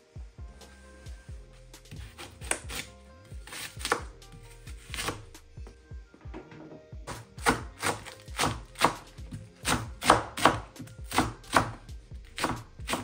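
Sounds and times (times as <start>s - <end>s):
knife chopping on wooden board: 1.9s - 4.1s, 4.8s - 5.2s, 7.1s - 13.0s.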